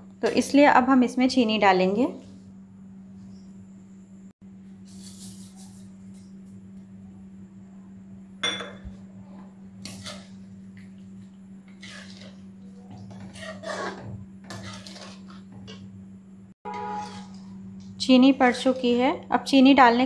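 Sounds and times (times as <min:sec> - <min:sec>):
steel spoon scraping metal pan: 0:09.8 - 0:10.4, 0:11.7 - 0:15.9, 0:16.7 - 0:17.6.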